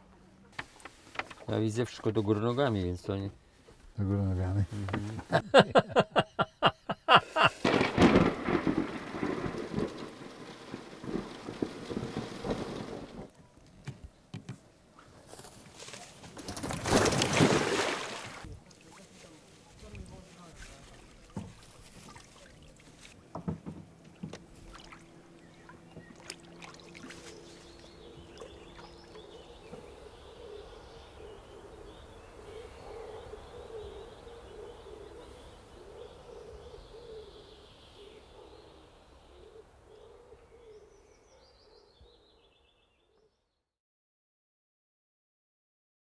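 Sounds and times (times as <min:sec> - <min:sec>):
birds calling: 0:21.0 - 0:42.7
sharp knocks and clatter: 0:23.3 - 0:24.5.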